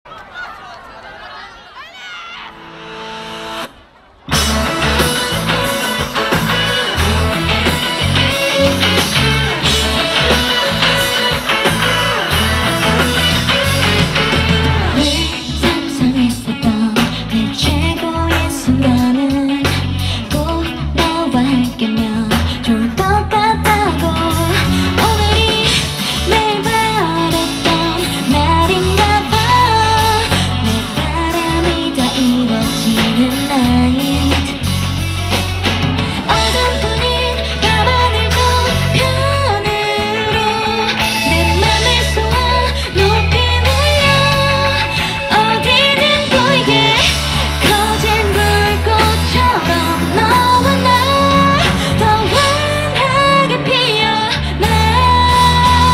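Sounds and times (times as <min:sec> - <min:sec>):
pop-rock band playing: 0:02.5 - 0:55.9
drum kit: 0:04.3 - 0:55.9
woman singing: 0:14.8 - 0:34.7, 0:36.2 - 0:55.9.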